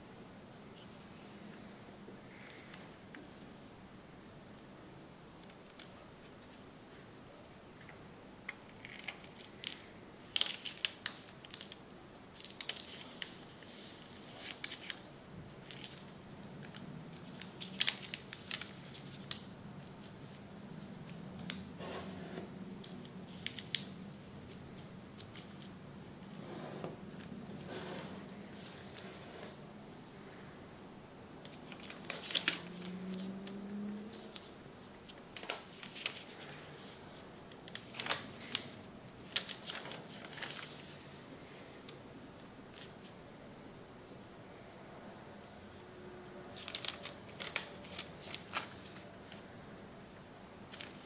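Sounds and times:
paper crackling and rustling: 0:08.7 - 0:29.7, 0:31.4 - 0:43.2, 0:46.6 - 0:49.5, 0:50.7 - 0:51.0.

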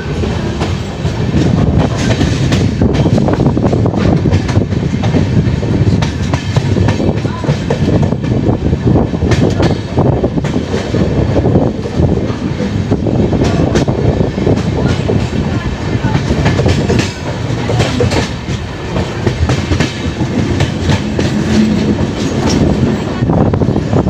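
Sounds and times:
clickety-clack of rail joints: 0:00.0 - 0:24.0
train wheels rumbling on rails: 0:00.0 - 0:24.0.

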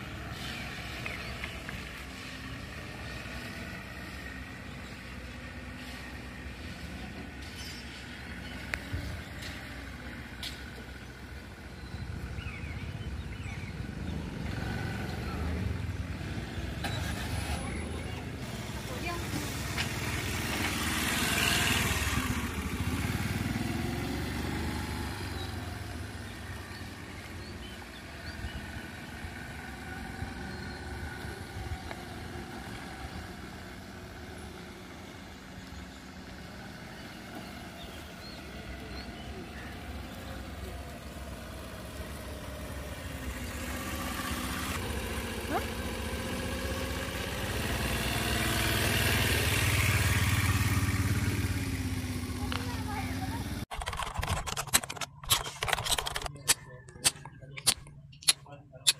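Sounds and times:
scooter engine revving: 0:12.0 - 0:57.9.

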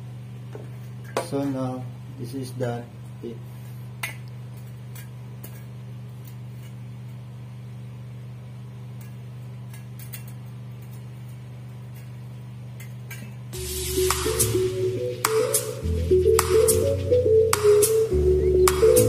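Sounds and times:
low hum: 0:13.6 - 0:19.0.

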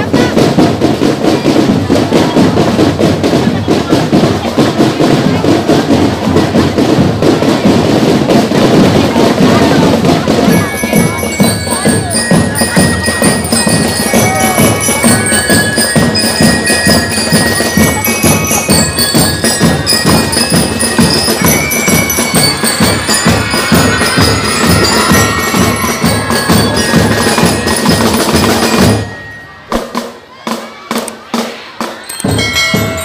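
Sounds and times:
marching drum beat: 0:00.0 - 0:33.0
bell-lyre melody: 0:10.4 - 0:29.8, 0:32.0 - 0:33.0.

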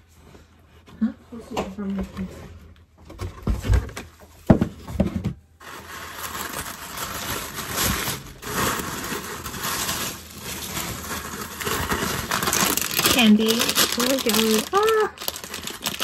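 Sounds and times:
handling knocks and thumps: 0:03.0 - 0:05.4
packaging rustling and crinkling: 0:05.6 - 0:16.0.

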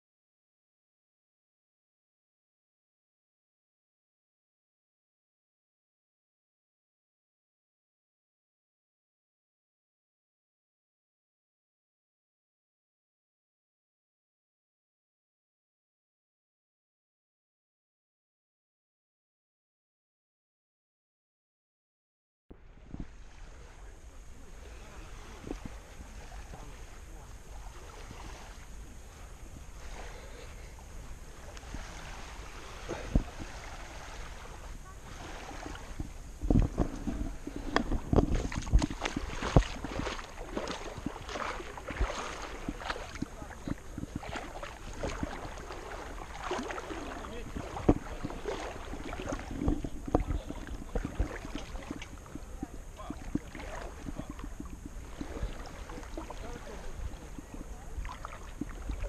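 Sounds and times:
faint gentle surf: 0:22.5 - 0:59.0
wind rumble on microphone: 0:22.5 - 0:59.0
sea water sloshing and splashing: 0:22.6 - 0:59.0.

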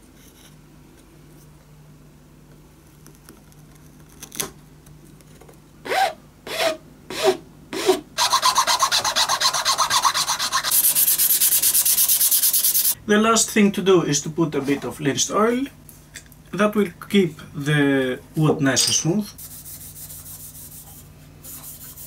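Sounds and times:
file rasping on wood: 0:07.8 - 0:13.0
sanding wood: 0:08.2 - 0:13.0, 0:19.4 - 0:22.0.

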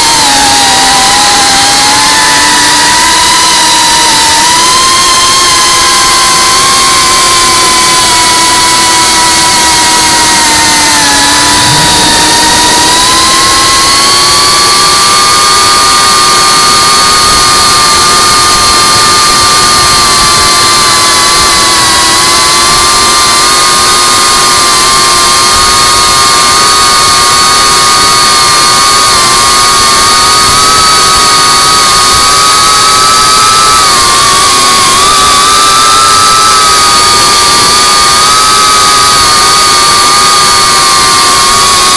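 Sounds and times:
quadcopter motors whining: 0:00.0 - 0:41.9.

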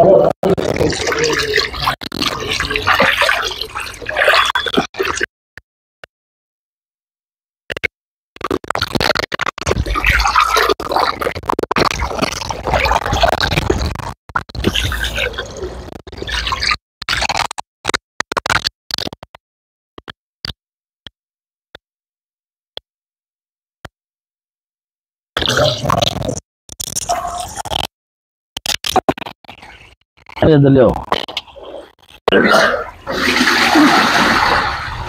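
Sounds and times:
water sloshing in a tub: 0:00.7 - 0:05.2, 0:32.4 - 0:35.0
wet squelching: 0:31.0 - 0:35.0.

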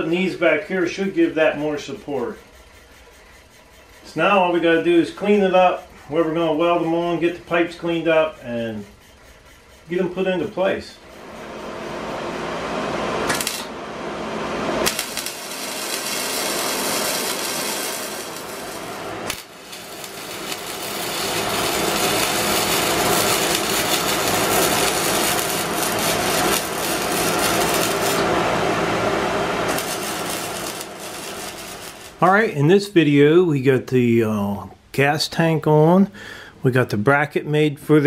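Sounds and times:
arc welding crackling hiss: 0:00.0 - 0:11.9, 0:13.2 - 0:13.8, 0:14.8 - 0:32.6.

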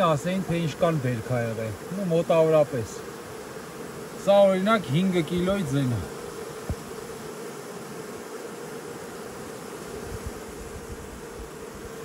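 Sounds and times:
honeybees humming: 0:00.0 - 0:12.0.

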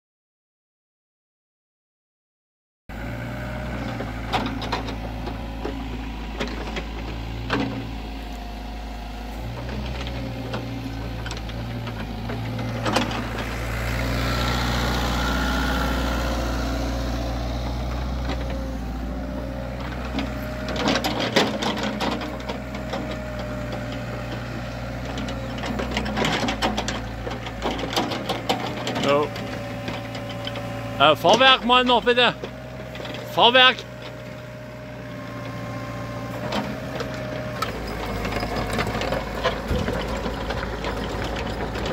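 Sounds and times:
diesel engine running: 0:02.9 - 0:41.9
clanks and rattles: 0:03.8 - 0:08.0, 0:09.4 - 0:14.3, 0:17.7 - 0:35.8, 0:36.4 - 0:41.9.

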